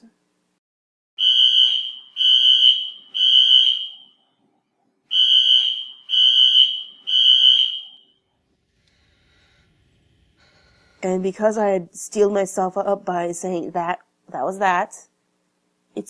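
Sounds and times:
fire alarm pulsing tone: 1.2 - 4.4, 5.1 - 8.4.

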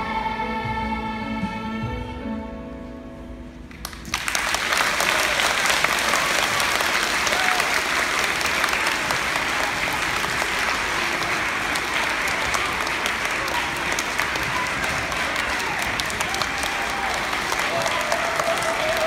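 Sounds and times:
audience applause: 3.8 - 19.0.

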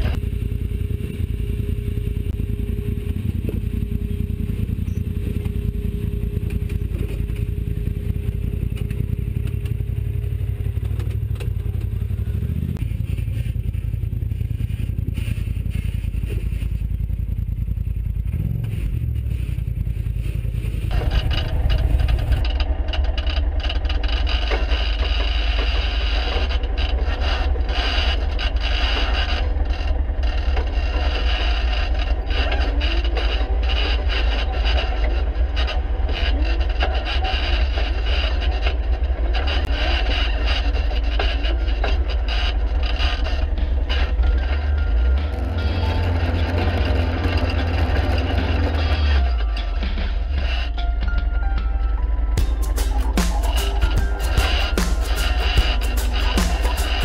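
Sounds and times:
engine low rumble: 0.0 - 57.0
vehicle scraping on stone: 52.4 - 57.0.

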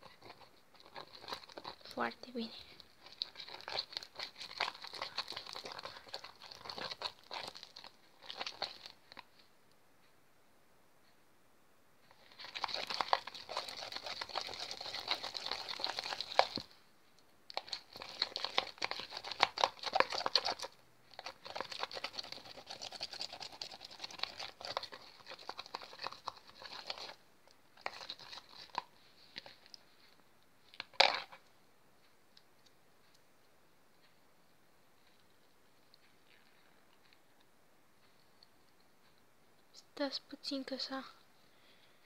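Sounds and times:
slime being stirred: 0.0 - 9.4, 12.1 - 16.8, 17.5 - 31.5, 35.2 - 37.3.

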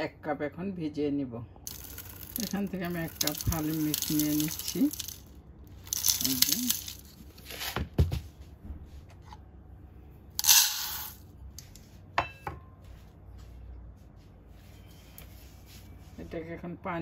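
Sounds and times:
dry grains rattling into steel cup: 1.6 - 7.7, 10.4 - 11.7
grains rushing into metal pot: 1.7 - 7.6, 10.4 - 11.2.

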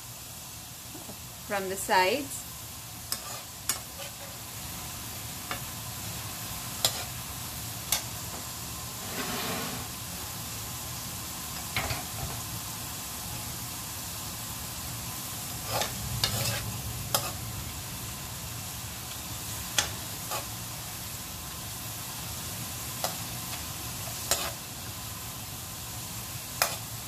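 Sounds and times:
onions sizzling in oil: 0.0 - 27.0
metal spoon scraping a pan: 3.1 - 4.4, 6.8 - 7.2, 8.9 - 10.0, 15.6 - 17.4, 19.7 - 20.6, 24.0 - 24.6, 26.6 - 26.9.

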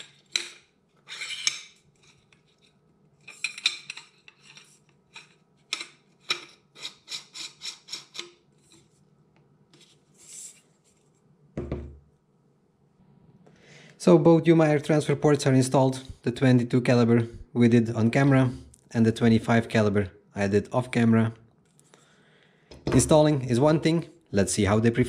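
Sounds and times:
metal tubes scraping: 0.0 - 9.0.

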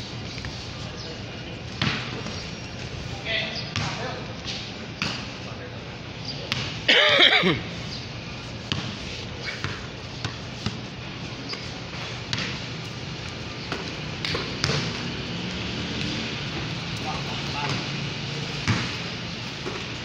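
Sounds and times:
basketball bouncing on concrete: 1.8 - 2.4, 3.7 - 4.1, 6.5 - 6.8, 8.6 - 10.9, 11.5 - 15.1, 18.5 - 20.0.

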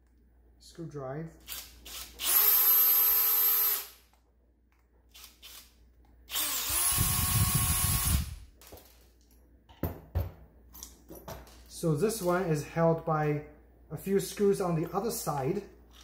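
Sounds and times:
cordless drill whining: 1.5 - 4.0, 6.3 - 8.4.

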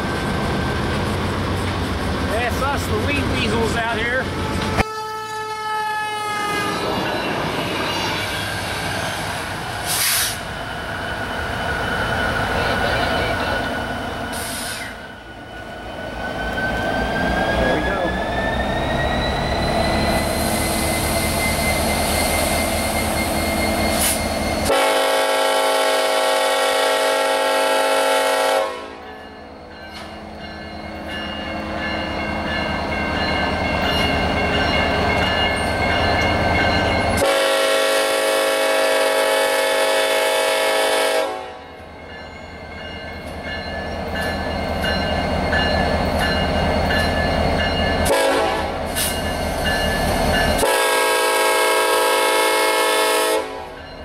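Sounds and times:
diesel locomotive rumble: 0.0 - 4.9
train air horn blasts: 4.8 - 6.8, 24.0 - 29.0, 37.2 - 41.6, 48.1 - 49.1, 50.6 - 53.7.

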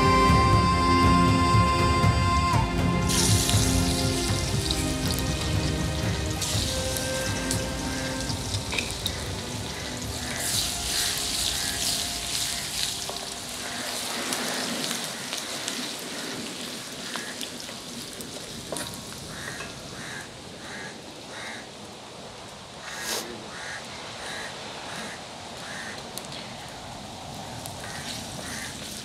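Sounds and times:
fish sizzling in hot oil: 3.1 - 19.5.

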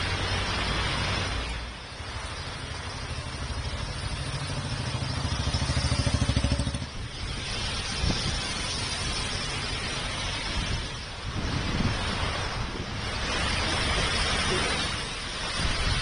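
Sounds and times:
heavy rain hiss: 0.0 - 16.0
traffic on wet road: 0.0 - 16.0
vehicle engine running: 2.8 - 8.2.

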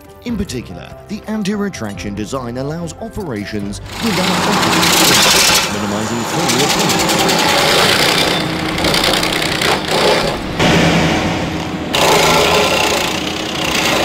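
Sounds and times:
engine running: 3.8 - 14.0
mechanical grinding and rattling: 3.8 - 14.0.

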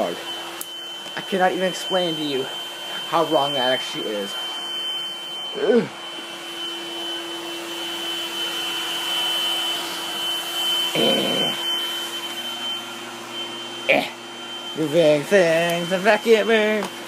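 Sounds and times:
vacuum cleaner running: 0.0 - 17.0
person's voice: 1.1 - 4.5, 5.6 - 6.0, 11.0 - 11.6, 13.8 - 17.0.

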